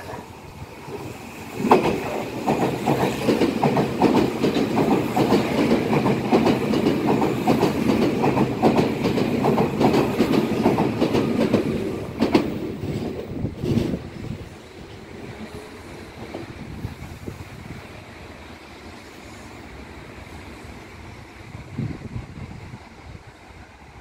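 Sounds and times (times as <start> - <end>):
train passing rumble: 0.0 - 24.0
wheels clacking over rail joints: 1.6 - 14.1.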